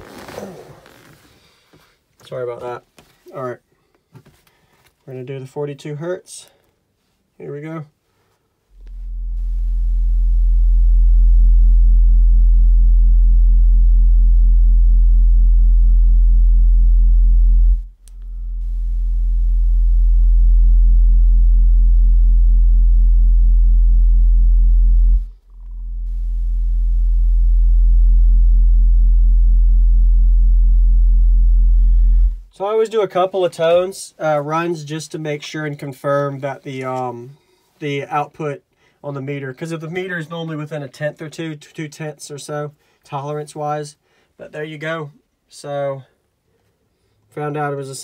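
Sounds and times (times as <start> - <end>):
loud low sine test tone: 8.7 - 32.6.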